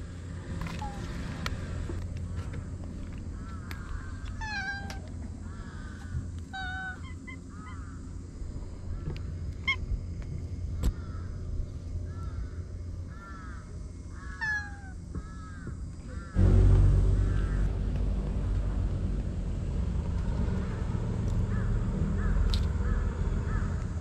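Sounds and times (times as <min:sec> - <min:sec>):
birds calling: 0:00.7 - 0:08.3, 0:10.8 - 0:16.4, 0:20.5 - 0:24.0
cat meowing: 0:04.4 - 0:05.0, 0:06.6 - 0:07.8, 0:14.4 - 0:15.0.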